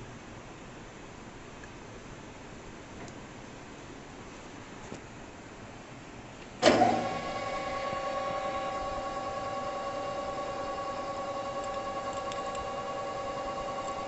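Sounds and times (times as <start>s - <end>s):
lathe starting clunk: 6.6s - 14.0s
metal lathe humming: 6.6s - 14.0s.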